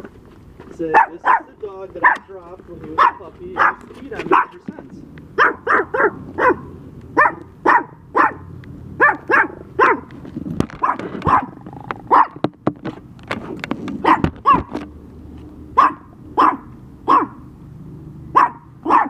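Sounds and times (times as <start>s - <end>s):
small dog barking: 0.9s - 2.3s, 3.0s - 4.6s, 5.4s - 10.1s, 10.8s - 12.4s, 14.0s - 14.7s, 15.8s - 17.5s, 18.3s - 19.0s.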